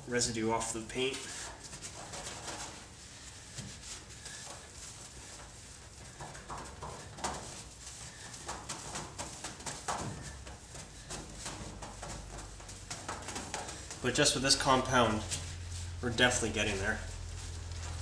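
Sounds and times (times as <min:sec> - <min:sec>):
cloth rubbing on metal panel: 0:00.0 - 0:18.0.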